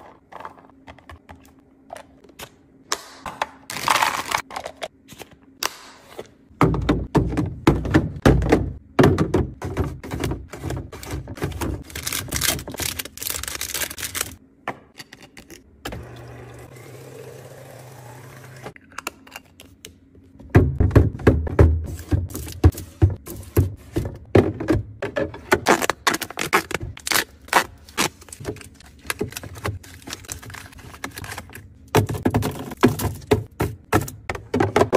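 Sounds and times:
plastic containers clicking and knocking: 6.6 - 11.9, 31.9 - 34.9.

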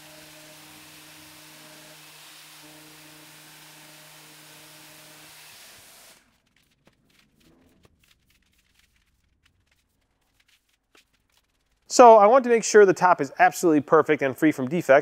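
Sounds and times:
orbital sander humming: 0.0 - 6.2
faint rustles and ticks: 6.3 - 11.9.

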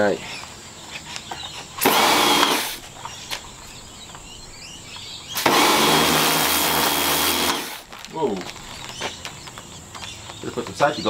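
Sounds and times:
pressure washer spraying: 1.8 - 2.9, 5.4 - 7.8.

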